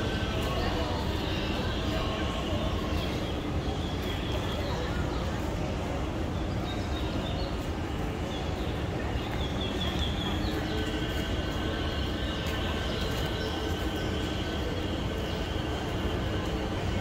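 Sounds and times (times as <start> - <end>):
small birds chirping: 6.4 - 16.8.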